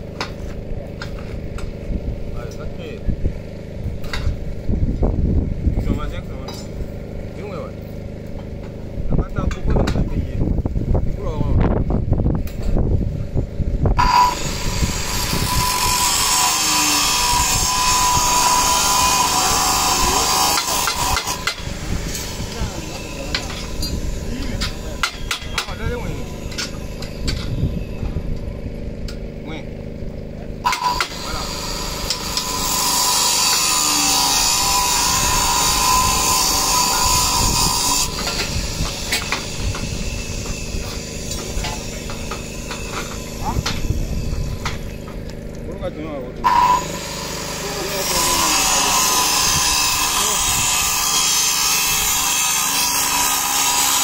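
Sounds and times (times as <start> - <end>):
power tool whining: 12.4 - 54.0.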